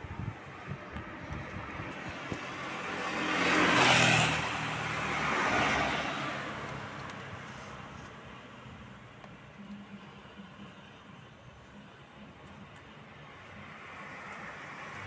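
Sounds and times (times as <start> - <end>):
vehicle passing by: 0.1 - 8.0.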